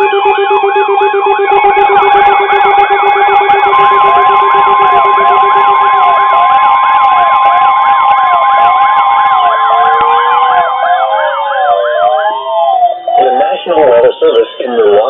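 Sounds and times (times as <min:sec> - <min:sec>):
fast repeating warble alarm: 0:00.0 - 0:15.0
steady high alarm tone: 0:00.0 - 0:15.0
slow sweeping alert tones: 0:07.8 - 0:15.0.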